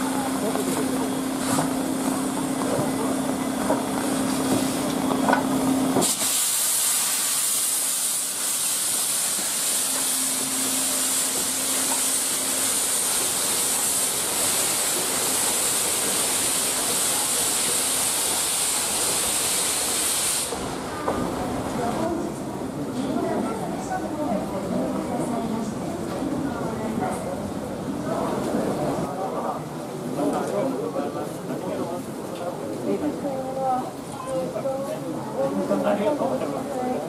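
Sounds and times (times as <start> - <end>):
steam hissing loudly: 5.6 - 22.0.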